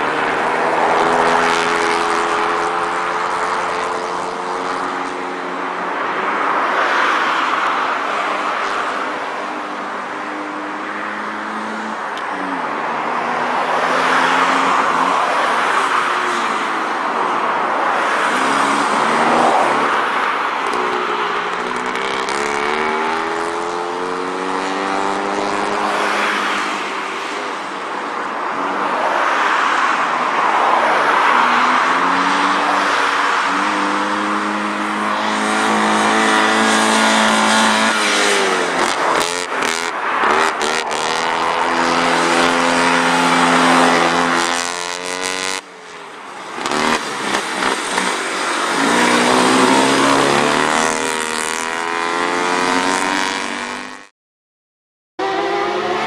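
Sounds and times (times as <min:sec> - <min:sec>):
small car engine revving: 0:20.9 - 0:26.2, 0:33.6 - 0:45.6, 0:46.6 - 0:54.1.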